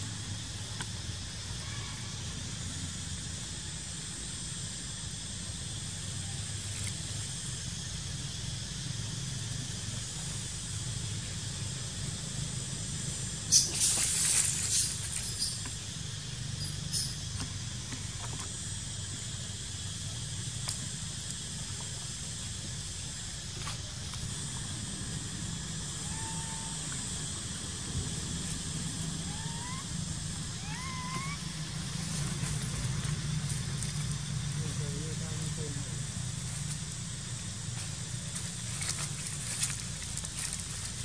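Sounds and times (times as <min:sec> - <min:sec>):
outdoor background hiss: 0:00.0 - 0:41.0
crackling rustle: 0:13.6 - 0:15.4, 0:37.8 - 0:41.0
faint high drone: 0:23.1 - 0:32.9.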